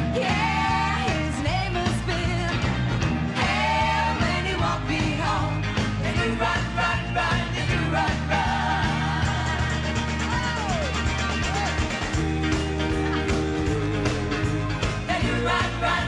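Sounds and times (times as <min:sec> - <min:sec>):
women singing: 0:00.0 - 0:02.6, 0:03.4 - 0:09.9, 0:15.0 - 0:16.0
live band playing pop: 0:00.0 - 0:16.0.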